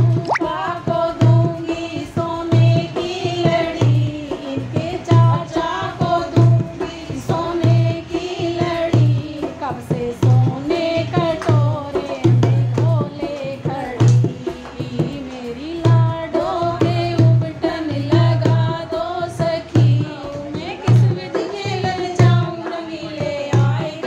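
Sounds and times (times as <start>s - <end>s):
low drum beat: 0.0s - 1.6s
woman singing: 0.0s - 24.0s.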